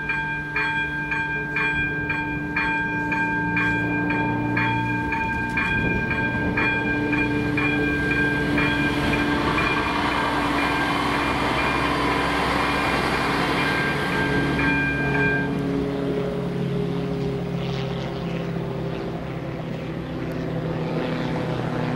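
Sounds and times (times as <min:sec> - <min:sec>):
level crossing bell ringing: 0:00.0 - 0:12.9, 0:13.6 - 0:15.6
train wheel noise: 0:00.0 - 0:20.8
diesel train engine: 0:00.0 - 0:21.9.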